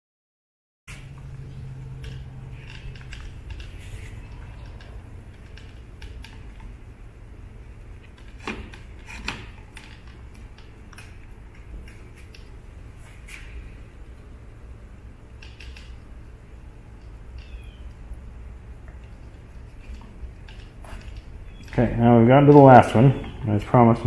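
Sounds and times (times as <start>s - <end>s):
steady low hum: 0.9s - 24.0s.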